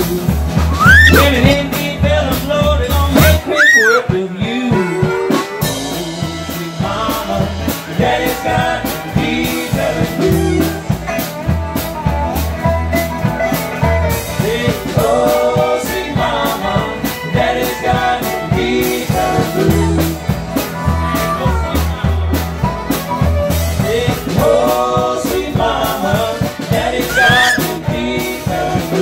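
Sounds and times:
fiddle: 0:00.8 - 0:01.4, 0:03.4 - 0:04.1
harmonica melody: 0:00.8 - 0:01.4, 0:03.4 - 0:04.0, 0:27.1 - 0:27.7.

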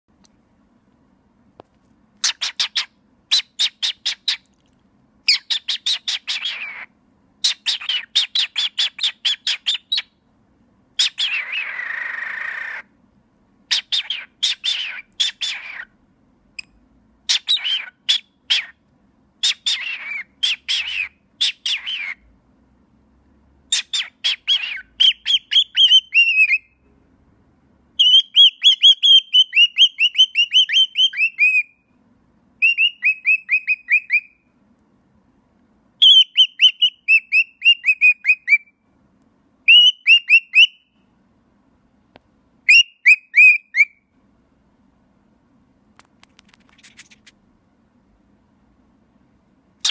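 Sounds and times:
cockatiel chattering and chirping: 0:02.2 - 0:04.5, 0:05.3 - 0:10.1, 0:11.0 - 0:12.9, 0:13.7 - 0:15.9, 0:17.3 - 0:18.8, 0:19.4 - 0:22.2, 0:23.7 - 0:26.7, 0:28.0 - 0:31.8, 0:32.6 - 0:34.4, 0:36.0 - 0:38.7, 0:46.3 - 0:47.3.

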